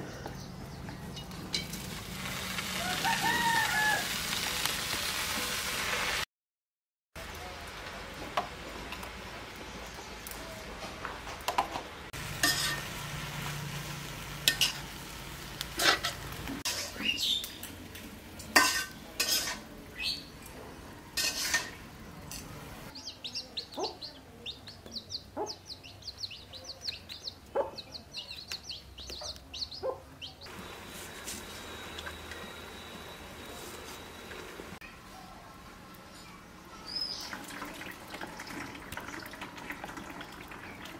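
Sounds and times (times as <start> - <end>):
faint sizzle: 1.5 - 6.2, 12.2 - 23.2, 30.4 - 40.9
metal spatula clanking on wok: 12.4 - 12.9, 14.5 - 14.8, 18.4 - 19.7, 21.2 - 22.5.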